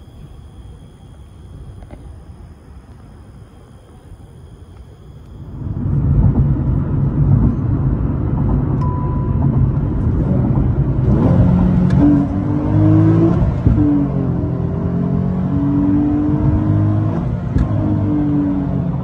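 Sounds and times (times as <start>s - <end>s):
car engine accelerating: 4.8s - 19.0s.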